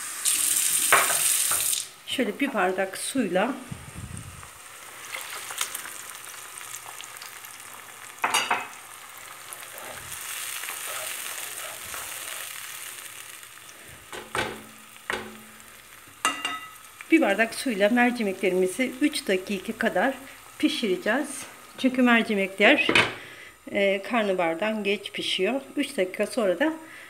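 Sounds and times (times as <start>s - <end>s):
onions sizzling in frying pan: 0.0s - 27.0s.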